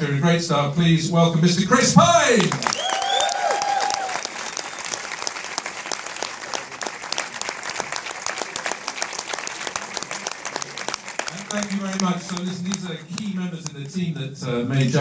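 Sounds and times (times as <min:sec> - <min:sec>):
audience applauding: 0:02.3 - 0:13.8.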